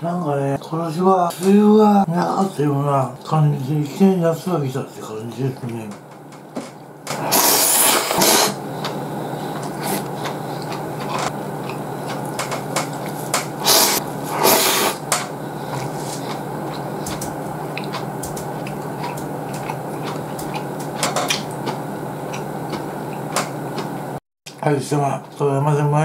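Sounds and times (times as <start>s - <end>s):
noodles slurped: 7.2s - 8.6s, 9.5s - 15.0s
chewing: 7.2s - 15.0s, 15.6s - 24.0s.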